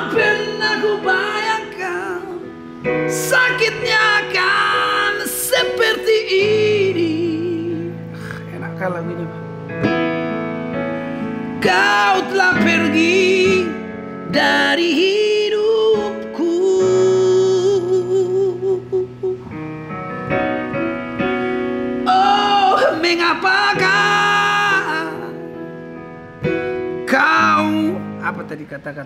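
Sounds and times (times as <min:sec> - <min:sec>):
sustained keyboard chords: 0:00.0 - 0:29.0
man singing a pop ballad: 0:11.6 - 0:19.3, 0:22.1 - 0:25.6, 0:27.0 - 0:28.4.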